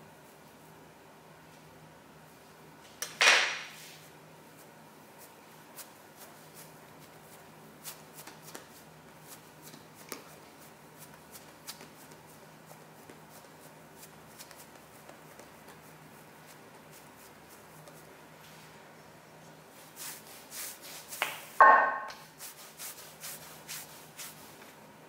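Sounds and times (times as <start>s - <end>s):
hands patting dough: 4.6s - 18.4s, 19.9s - 24.8s.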